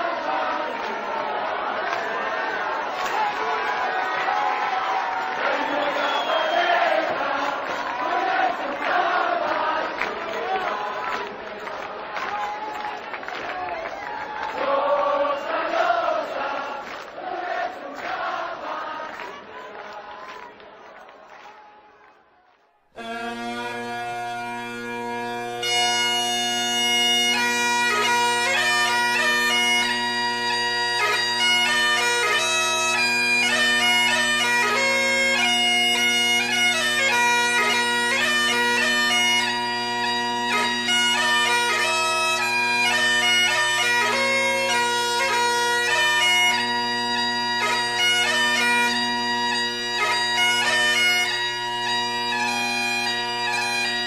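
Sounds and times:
bagpipe music: 5.1 - 11.2, 23.0 - 54.0.

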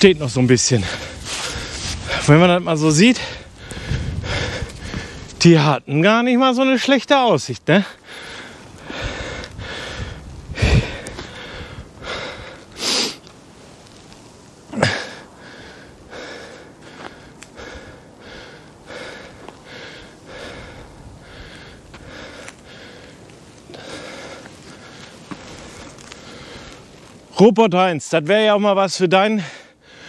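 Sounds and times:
man panting heavily: 0.8 - 2.4, 3.1 - 5.4, 7.9 - 13.2, 14.7 - 26.8, 29.4 - 30.0.

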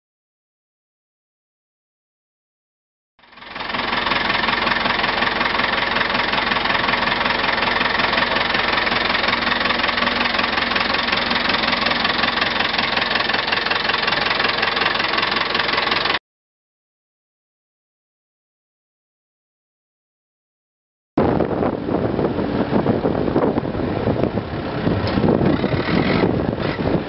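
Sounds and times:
diesel tractor engine idling: 3.2 - 16.2, 21.8 - 27.0.

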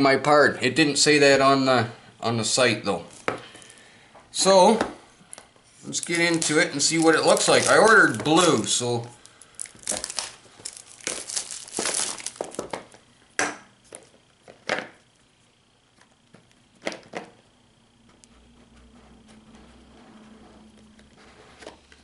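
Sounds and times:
cellophane crinkling: 5.7 - 13.0.

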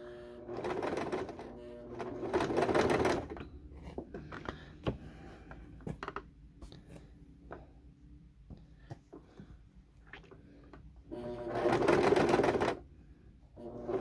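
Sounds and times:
sewing machine stitching: 0.3 - 3.5, 11.1 - 12.8, 13.6 - 14.0.

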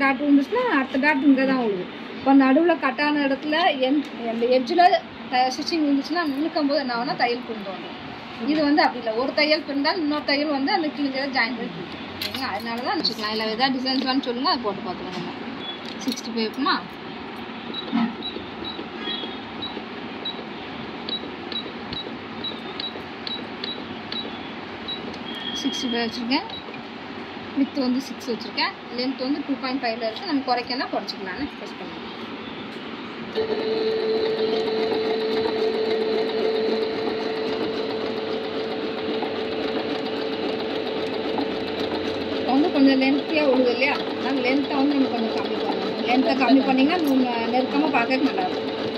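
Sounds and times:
sewing machine button beeps: 17.7 - 20.4, 21.1 - 26.7, 33.4 - 40.4.

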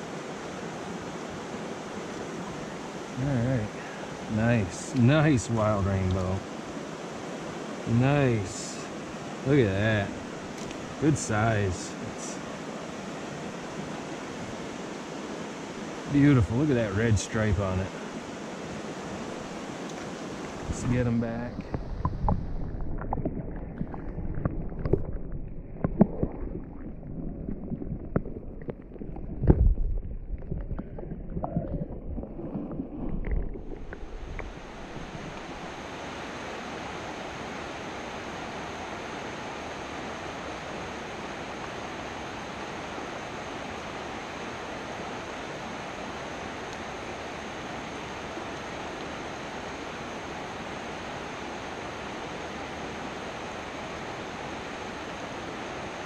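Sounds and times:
stream water flowing: 0.0 - 56.0
muffled water sloshing: 18.7 - 36.0.

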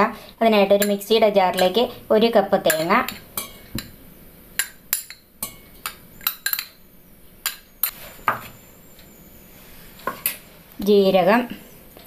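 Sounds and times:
steel spoon clinking on glass: 4.6 - 6.8.

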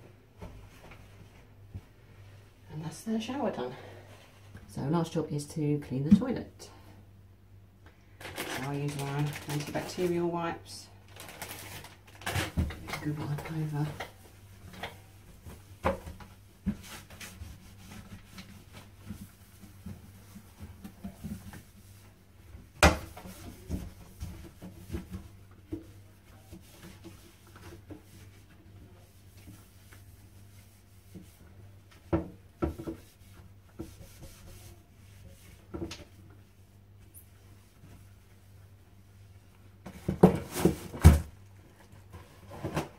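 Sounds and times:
wipe rubbing on toilet: 13.5 - 22.3, 23.3 - 32.1, 32.7 - 35.7.

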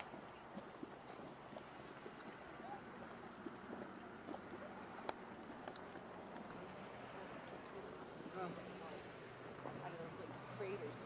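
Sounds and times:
mud bubbling and plopping: 0.0 - 10.5.

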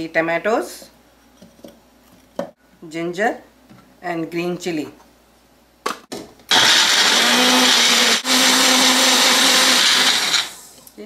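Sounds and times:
blender motor running: 6.5 - 10.8.

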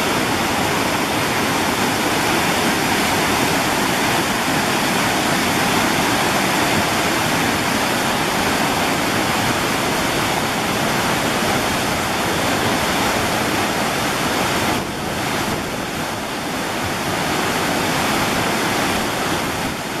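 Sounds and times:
waterfall rushing over rocks: 0.0 - 20.0.

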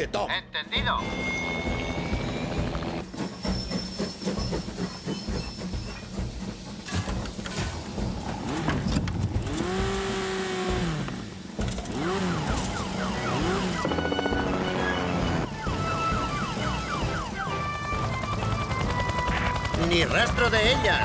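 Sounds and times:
orchestral background music: 4.1 - 21.0
cartoon siren wailing: 12.4 - 18.2.

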